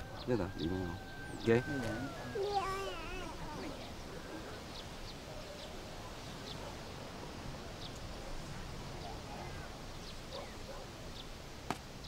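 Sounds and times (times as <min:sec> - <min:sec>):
bird chirps: 0:00.0 - 0:05.8
steady low hiss: 0:00.0 - 0:12.0.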